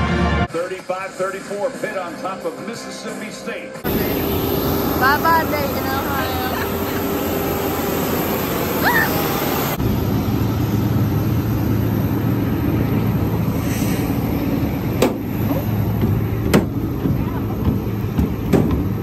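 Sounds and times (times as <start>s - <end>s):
jet airliners rushing and humming: 0.0s - 19.0s
ramp equipment hum: 3.8s - 19.0s
sharp knock: 17.7s - 19.0s.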